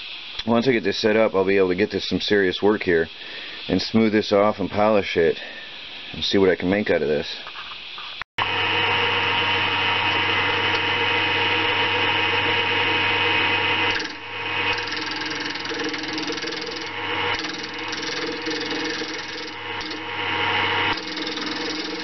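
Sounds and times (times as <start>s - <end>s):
wood lathe motor hum: 8.4s - 22.0s
tool rasping against wood: 13.9s - 20.0s, 20.9s - 22.0s.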